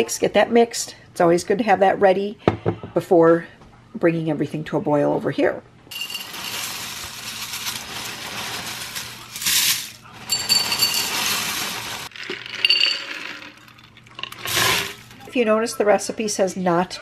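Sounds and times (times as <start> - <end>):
peanuts and cornflakes pouring into bowl: 5.9 - 15.2.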